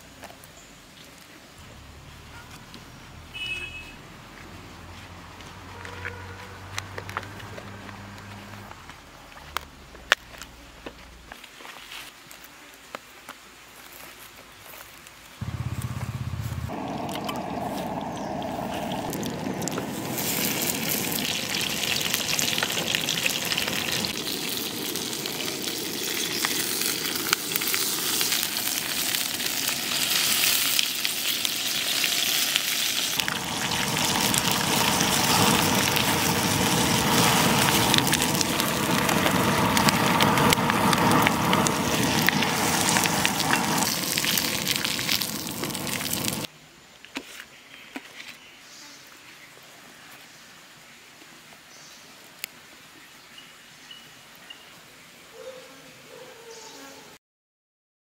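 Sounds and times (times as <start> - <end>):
oil sizzling in a frying pan: 17.0 - 46.5.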